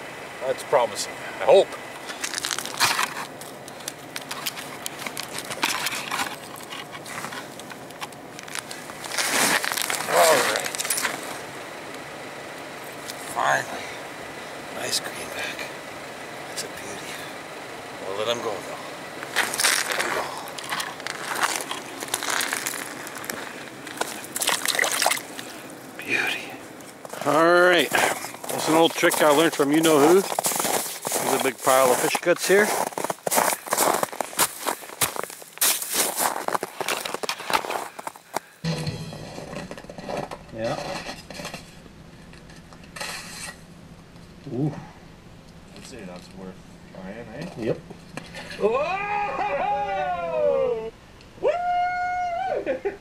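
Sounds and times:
ice and slush crunching: 2.1 - 7.7, 8.4 - 11.4, 19.3 - 26.3, 27.0 - 38.5.

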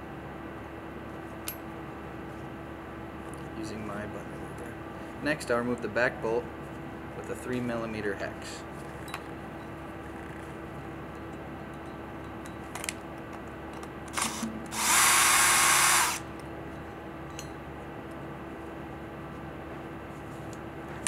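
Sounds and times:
cordless drill running: 14.1 - 16.3.

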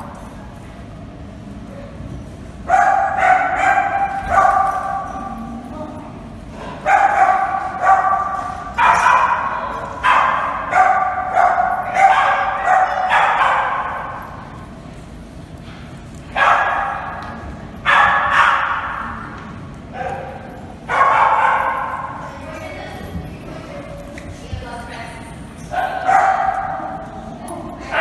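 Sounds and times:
dog barking in echoing room: 2.6 - 5.5, 6.6 - 14.7, 16.3 - 19.2, 19.8 - 22.4, 25.4 - 28.0.

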